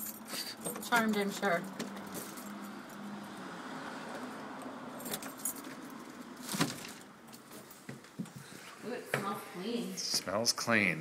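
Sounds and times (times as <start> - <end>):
keys jangling: 0.0 - 3.0, 4.9 - 6.2
passing car: 0.5 - 7.9.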